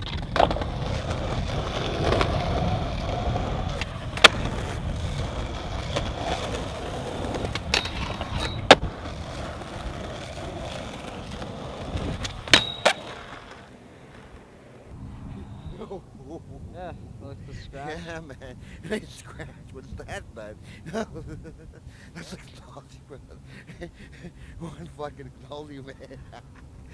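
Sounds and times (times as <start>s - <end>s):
skateboard clacks: 0.0s - 14.5s
skateboard wheels rolling on concrete: 0.0s - 26.9s
skateboard hitting metal rail: 7.6s - 8.9s, 12.2s - 13.6s.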